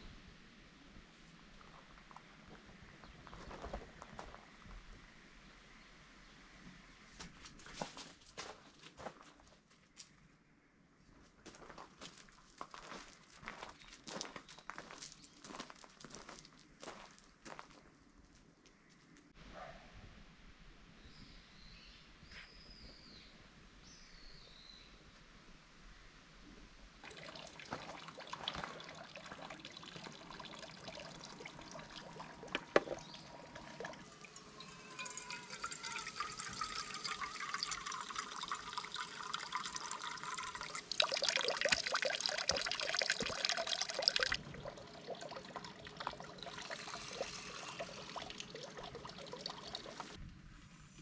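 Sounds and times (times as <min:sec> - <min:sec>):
water running into stone basin: 0:27.0 - 0:50.2
water splashing into metal cup: 0:27.0 - 0:50.2.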